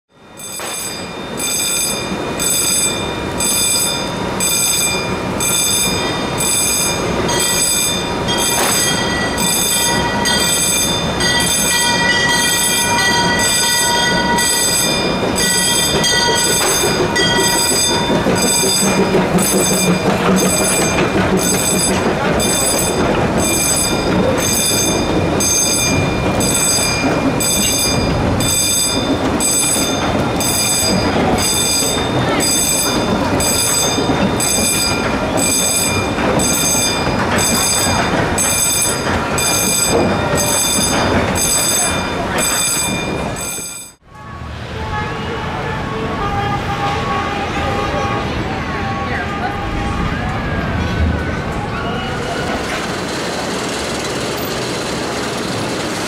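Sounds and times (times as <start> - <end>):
railroad crossing bell ringing: 0.1 - 44.0
train cars rumbling and clattering: 0.1 - 56.0.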